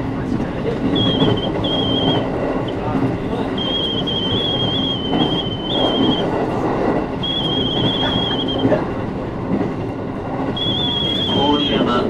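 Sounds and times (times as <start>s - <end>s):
train rumbling on track: 0.0s - 12.0s
high wavering wheel squeal: 0.9s - 2.8s, 3.5s - 6.4s, 7.2s - 8.8s, 10.5s - 12.0s.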